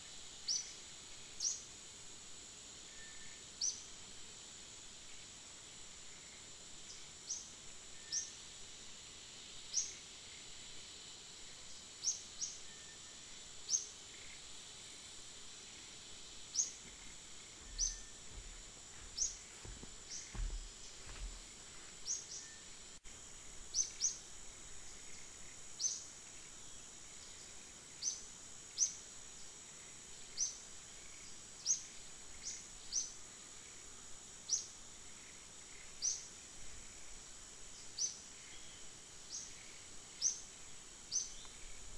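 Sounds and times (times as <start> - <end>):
high insect drone: 0.0 - 41.9
soft low thumps: 16.8 - 22.1
high bird chirps: 17.7 - 18.2.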